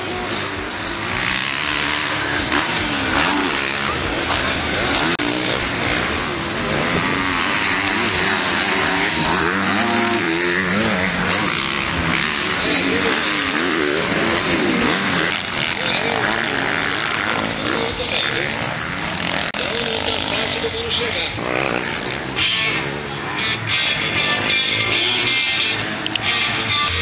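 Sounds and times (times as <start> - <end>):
motocross bikes revving: 0.0 - 27.0.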